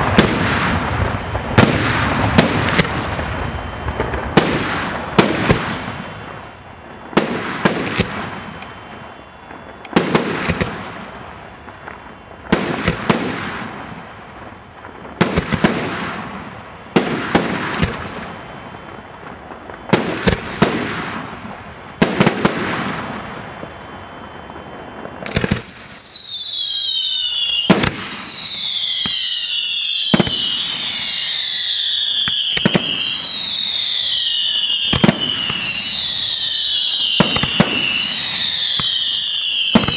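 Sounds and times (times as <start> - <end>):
firework shells bursting: 0.0 - 14.2, 24.9 - 31.2
falling firework whistles: 0.0 - 39.9.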